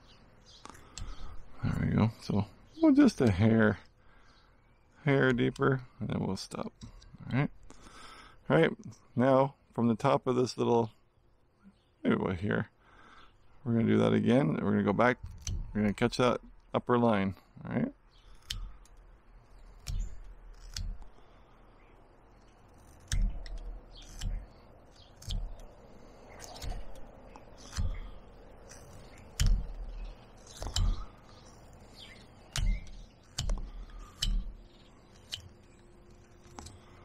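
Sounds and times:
knife cutting wood snaps: 19.7s - 21.2s, 22.8s - 34.6s.

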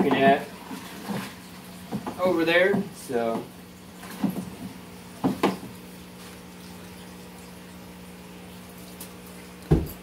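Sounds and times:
liquid sloshing in plastic barrel: 0.1s - 2.1s.

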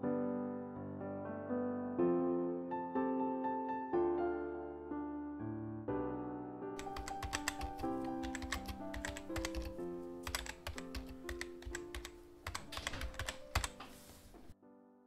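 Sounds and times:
gentle piano music: 0.0s - 15.0s
computer keyboard typing: 6.8s - 14.4s.

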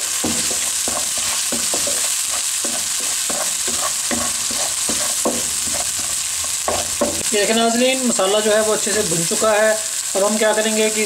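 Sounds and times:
wooden spatula scraping pan: 0.0s - 7.2s
food sizzling in hot oil: 0.0s - 11.0s.

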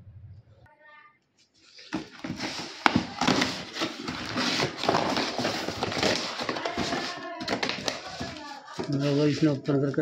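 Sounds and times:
cardboard tearing and crackling: 1.8s - 9.6s.

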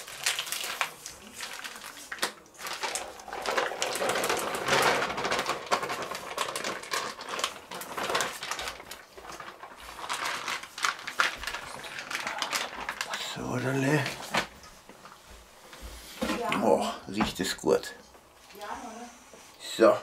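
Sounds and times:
plastic bag crinkling: 0.0s - 15.2s.

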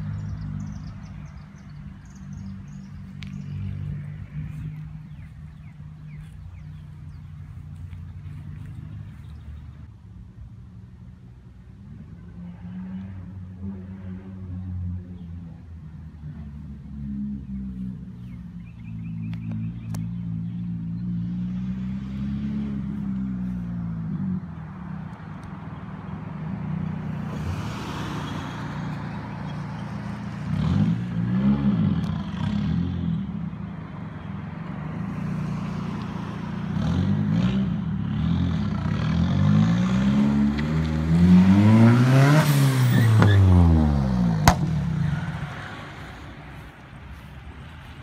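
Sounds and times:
car accelerating past: 34.8s - 47.8s
car engine revving: 35.2s - 47.3s
sharp crack: 44.4s - 45.4s.

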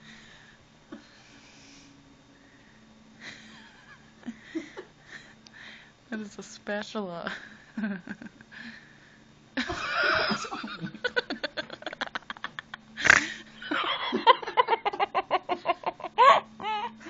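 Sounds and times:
person laughing: 9.6s - 17.0s.

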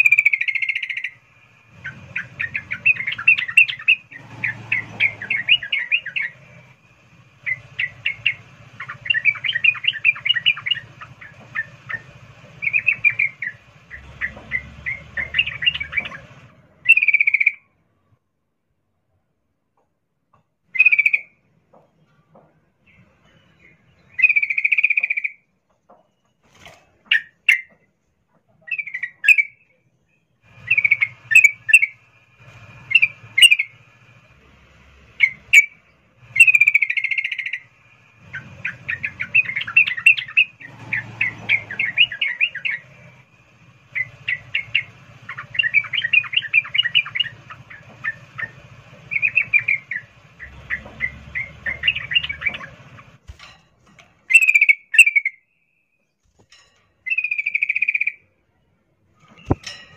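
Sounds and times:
bulbul chirping and trilling: 0.0s - 6.6s, 7.4s - 17.6s, 24.0s - 25.4s, 30.6s - 32.0s, 32.8s - 33.8s, 35.2s - 43.0s, 43.9s - 53.1s, 54.3s - 55.5s, 57.1s - 58.3s.

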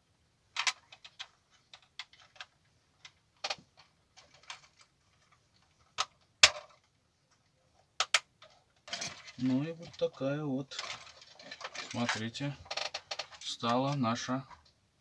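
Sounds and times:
plastic clicks and taps: 8.0s - 8.3s.

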